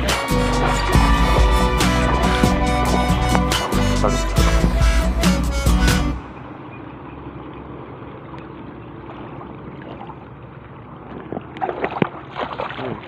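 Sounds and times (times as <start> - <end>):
water splashes: 6.4 - 13.0
seawater sloshing around wading person: 6.7 - 13.0.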